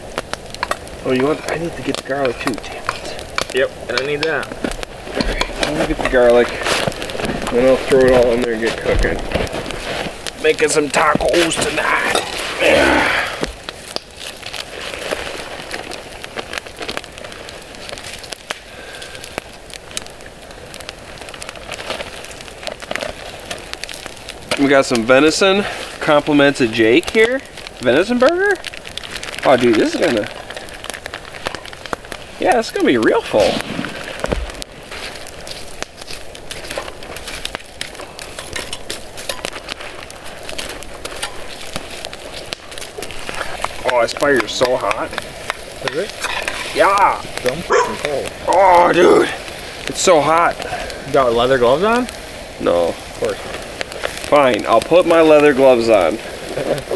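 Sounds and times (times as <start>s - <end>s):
campfire crackling: 0.0s - 56.9s.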